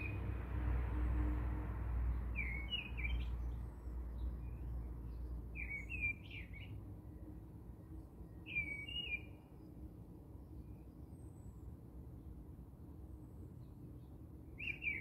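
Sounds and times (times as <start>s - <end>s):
bird chirping: 2.3s - 6.7s, 8.4s - 9.4s, 14.6s - 15.0s.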